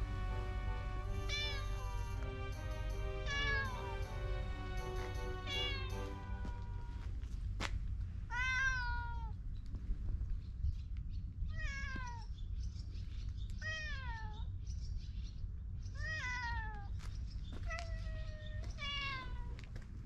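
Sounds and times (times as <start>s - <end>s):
background music with held notes: 0.0s - 7.2s
cat meowing: 1.2s - 2.1s, 3.3s - 3.8s, 5.5s - 7.0s, 8.3s - 9.4s, 11.5s - 12.3s, 13.6s - 14.4s, 16.0s - 16.9s, 17.7s - 19.5s.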